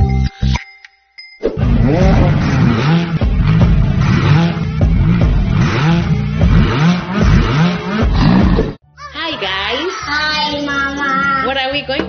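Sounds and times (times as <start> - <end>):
music: 0.0 - 1.1, 3.1 - 12.0
racing car engine revving: 1.6 - 8.8.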